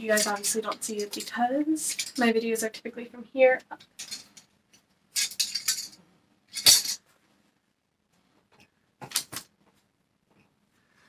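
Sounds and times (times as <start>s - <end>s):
plastic hanger clinking and clicking: 0.1s - 2.2s, 3.9s - 4.5s, 5.2s - 7.0s.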